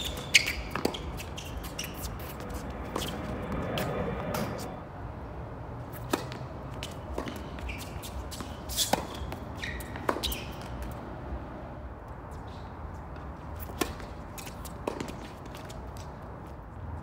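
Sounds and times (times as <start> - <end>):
sneaker squeaks on court: 0.0 - 4.6, 6.0 - 11.0
rackets striking tennis ball: 6.0 - 11.0, 13.6 - 16.1.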